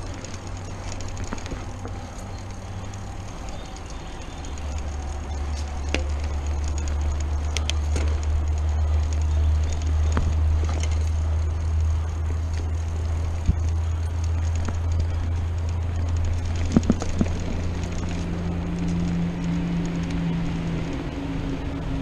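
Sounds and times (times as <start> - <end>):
bike clicks and rattles: 0.0 - 22.0.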